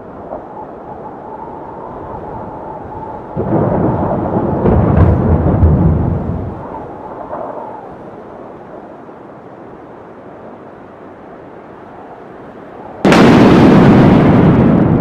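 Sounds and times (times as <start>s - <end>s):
deep rumble: 2.5s - 7.6s.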